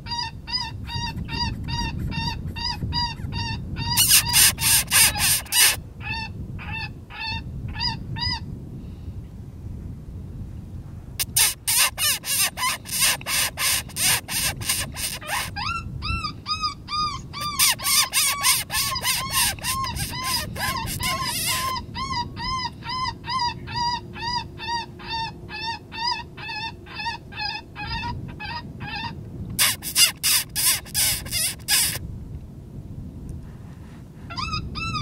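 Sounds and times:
short rising and falling squeals: 3.9 - 5.8, 11.3 - 15.5, 17.4 - 21.7
raspy distress call pulses: 4.0 - 5.8, 11.3 - 15.6, 17.4 - 21.8.

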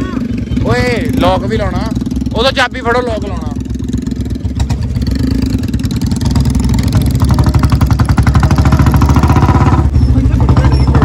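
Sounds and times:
motorcycle engine exhaust beat: 0.0 - 11.0.

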